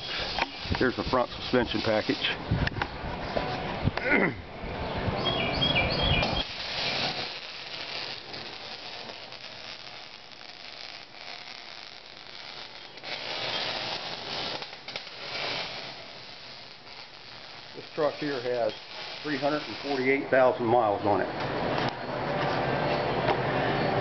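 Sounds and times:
welder arc crackling and sizzling: 0:00.0 - 0:02.8, 0:06.2 - 0:22.0.

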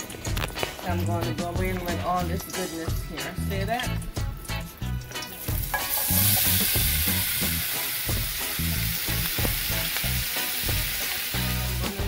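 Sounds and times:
vegetables sizzling in oil: 0:03.8 - 0:12.0.

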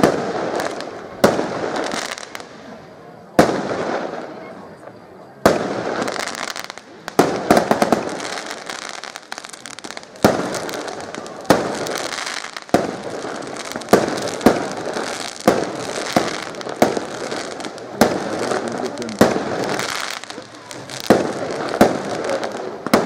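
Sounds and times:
crackling and hissing: 0:00.0 - 0:23.0
fireworks bangs: 0:00.0 - 0:23.0.

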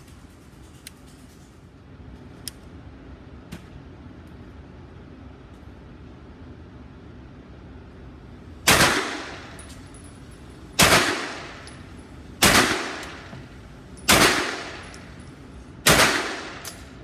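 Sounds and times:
gunshots echoing indoors: 0:08.6 - 0:09.9, 0:10.7 - 0:15.0, 0:15.8 - 0:17.0.

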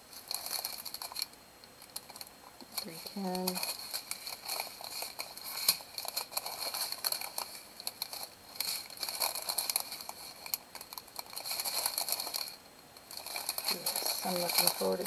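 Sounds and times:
plastic bags crinkling: 0:00.1 - 0:15.0.

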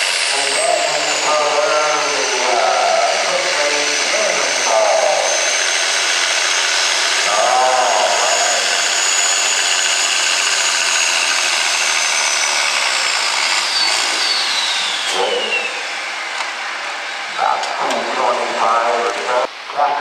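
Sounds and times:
tractor engine at full throttle: 0:00.0 - 0:20.0
high whistle: 0:13.7 - 0:15.9.

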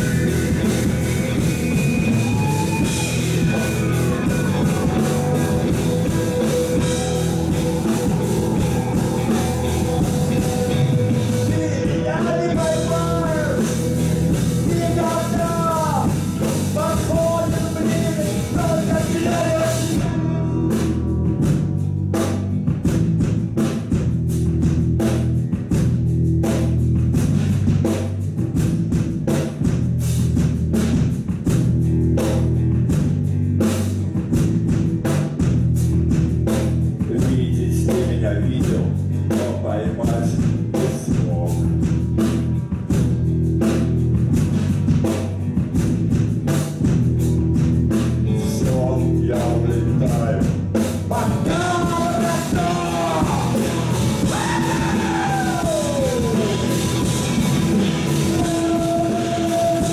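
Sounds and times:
descending gliding tones: 0:00.0 - 0:12.1
live rock band playing: 0:00.0 - 0:59.9.

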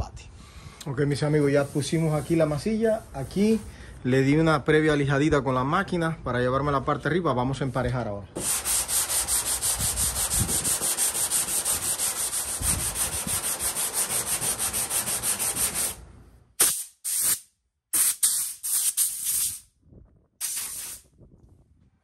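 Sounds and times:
sandpaper rubbing back and forth: 0:01.3 - 0:03.6, 0:08.4 - 0:16.0, 0:18.0 - 0:19.6, 0:20.4 - 0:21.0.

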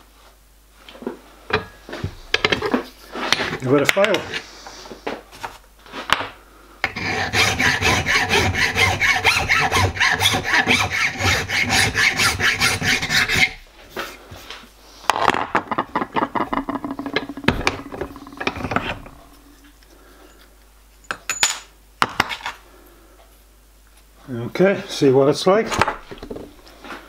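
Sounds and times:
file scraping steel: 0:06.8 - 0:13.6, 0:16.6 - 0:19.7.

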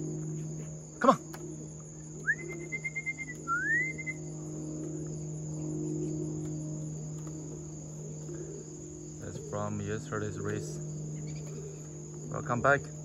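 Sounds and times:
crickets trilling: 0:00.0 - 0:13.0
low steady hum: 0:00.0 - 0:13.0
short rising whistle: 0:02.2 - 0:04.2.

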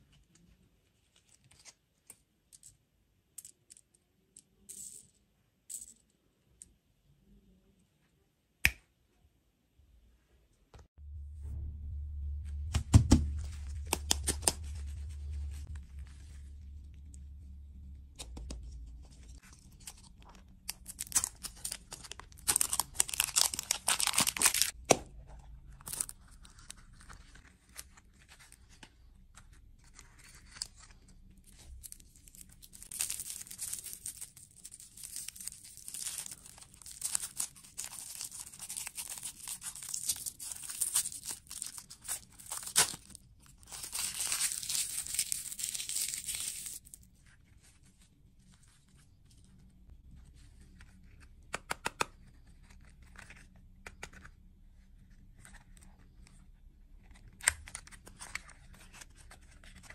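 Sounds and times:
plastic wrappers crinkling: 0:19.6 - 0:24.8, 0:31.5 - 0:47.0.

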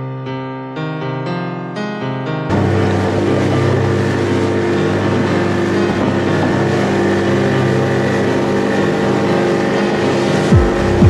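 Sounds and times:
engine droning steadily: 0:02.5 - 0:11.0.

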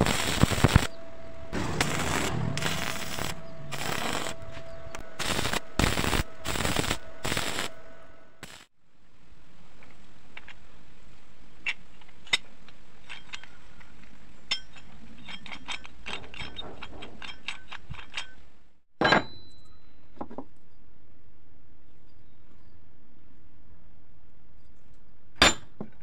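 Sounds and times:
sprocket clanking on wooden boards: 0:12.0 - 0:18.4.

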